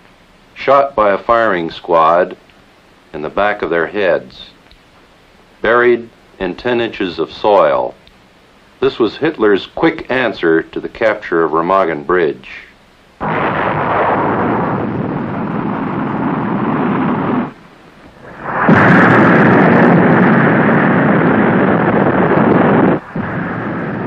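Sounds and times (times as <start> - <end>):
crackle: 0.0 - 24.0
explosions rumbling roar: 13.2 - 24.0.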